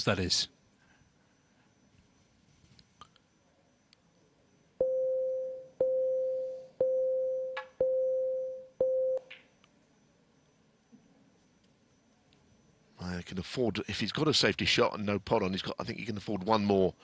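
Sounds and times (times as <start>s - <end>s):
shot clock warning beeps: 4.8s - 9.3s.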